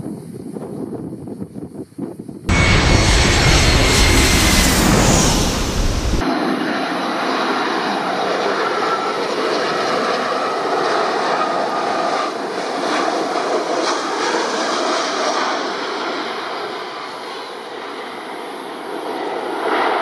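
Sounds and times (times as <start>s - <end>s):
jet engines rushing: 2.5s - 6.8s.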